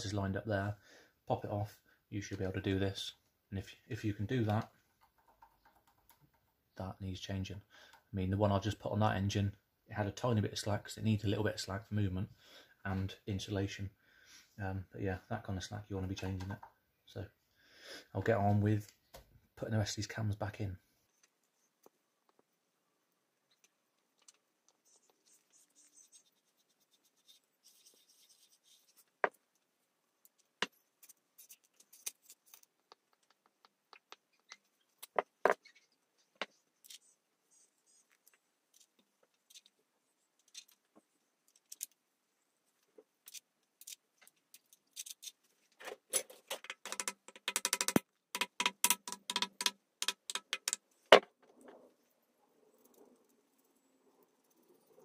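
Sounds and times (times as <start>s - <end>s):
metal clicks and taps: 46.5s - 51.3s.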